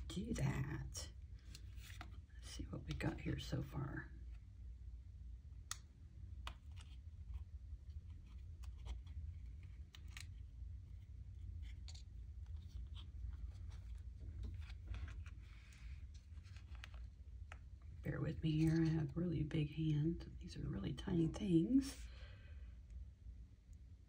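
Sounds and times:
steady low hum: 0:00.0 - 0:24.0
paper rustling: 0:01.4 - 0:02.2, 0:11.4 - 0:17.2.

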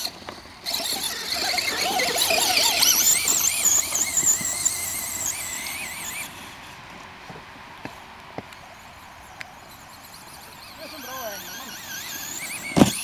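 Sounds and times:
electric motor whining: 0:00.0 - 0:06.7, 0:10.0 - 0:13.0.

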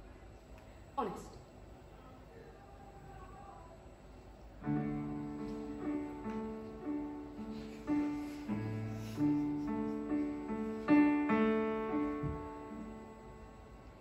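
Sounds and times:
keyboard playing piano chords: 0:04.6 - 0:14.0.

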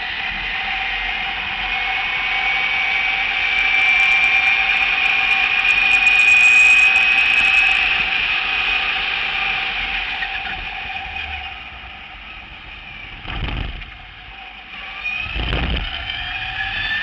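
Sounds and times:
electric motor high whine: 0:00.0 - 0:17.0
low thumps: 0:13.1 - 0:14.0.

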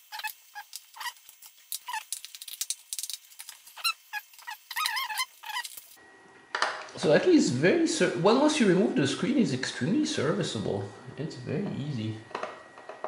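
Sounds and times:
high wavering squeaks: 0:00.0 - 0:02.2, 0:03.4 - 0:06.0.

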